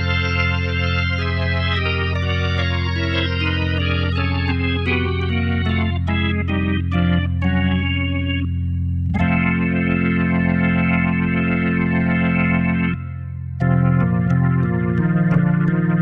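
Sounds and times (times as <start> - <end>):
organ playing: 0.0 - 16.0.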